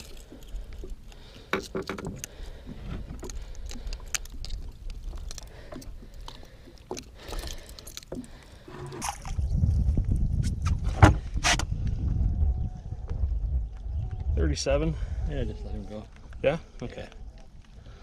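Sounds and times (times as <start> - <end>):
low rumble: 8.8 - 17.8.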